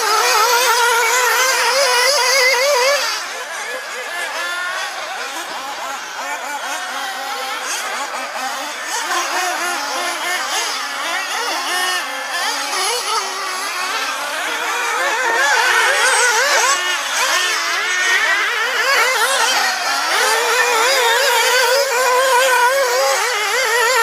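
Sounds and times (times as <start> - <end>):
rc buggy motors whining: 0.0 - 24.0.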